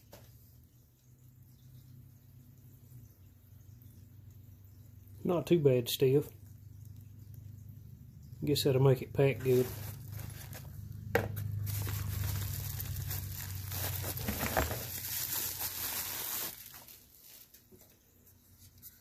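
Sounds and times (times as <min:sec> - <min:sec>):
plastic packaging crinkling: 0:09.2 - 0:18.0.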